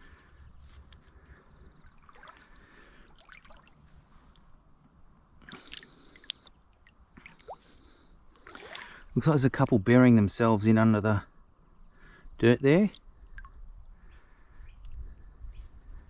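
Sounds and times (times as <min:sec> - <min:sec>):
shallow water sloshing: 0:01.7 - 0:04.4, 0:05.3 - 0:09.2.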